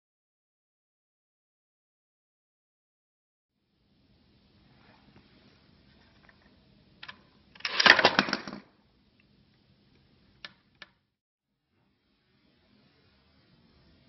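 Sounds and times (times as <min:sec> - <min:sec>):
parts clattering and rattling: 0:05.9 - 0:08.7.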